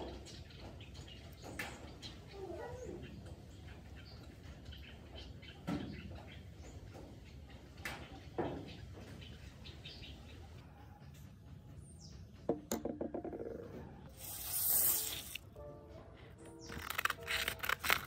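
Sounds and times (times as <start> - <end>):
pipe handling knocks: 12.5 - 13.6.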